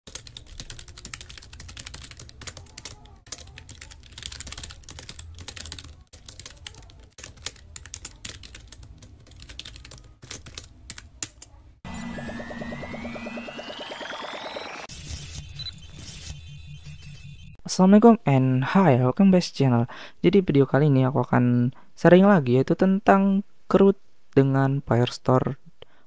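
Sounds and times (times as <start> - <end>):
keyboard typing: 0.1 - 17.3
rising electronic tone: 11.8 - 17.6.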